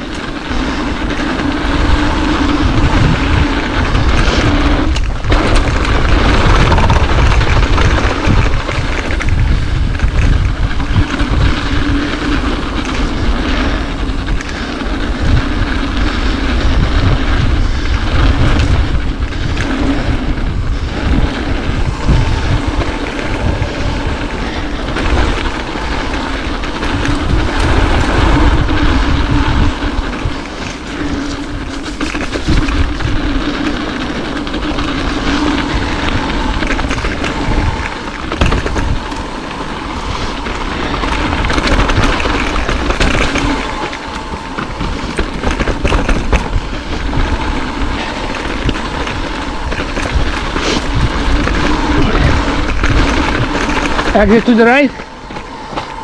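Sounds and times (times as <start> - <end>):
bike rattle: 0.0 - 56.0
steady buzzing tone: 0.0 - 56.0
tyre rumble: 0.0 - 56.0
wind buffeting microphone: 0.0 - 56.0.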